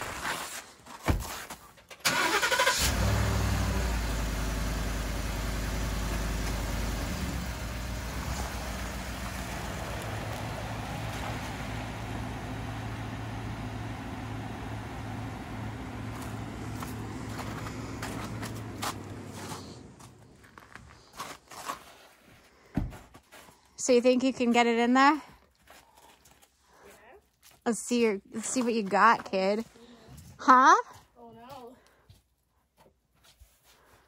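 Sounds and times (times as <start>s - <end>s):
pickup truck engine starting and idling: 1.9s - 20.8s
thump: 22.7s - 23.0s.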